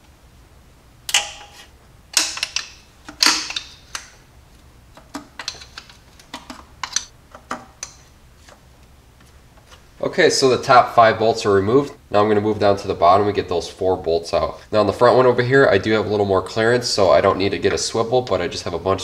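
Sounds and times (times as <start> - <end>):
hand ratchet clicking: 2.2 - 4.2.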